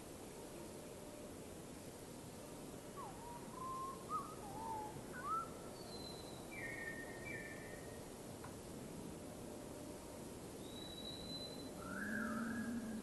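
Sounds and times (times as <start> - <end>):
background hiss: 0.0 - 13.0
songbird singing: 2.5 - 8.1, 10.6 - 13.0.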